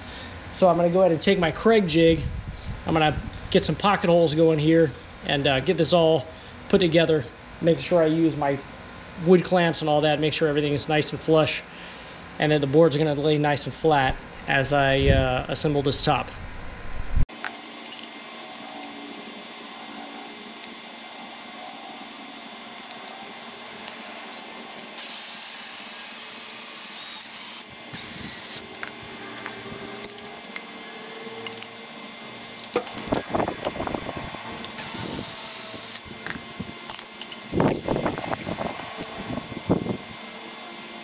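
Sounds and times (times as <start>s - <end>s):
cordless drill boring into wood: 24.9s - 29.0s, 32.5s - 36.1s.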